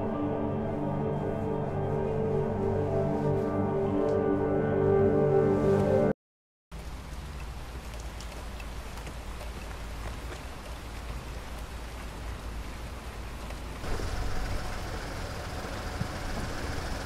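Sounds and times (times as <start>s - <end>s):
rain hissing on a street: 6.7s - 17.0s
car engine idling: 13.8s - 17.0s.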